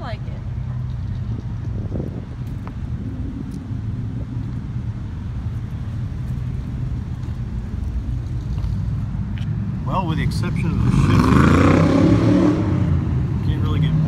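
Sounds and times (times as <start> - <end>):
vehicle engine running: 0.0 - 11.2.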